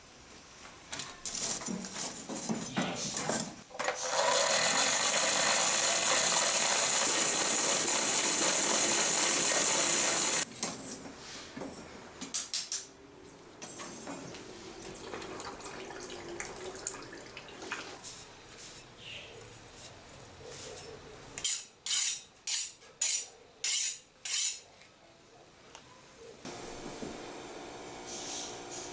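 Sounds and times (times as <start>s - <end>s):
air blower rushing and whining: 4.5s - 10.4s, 26.5s - 28.9s.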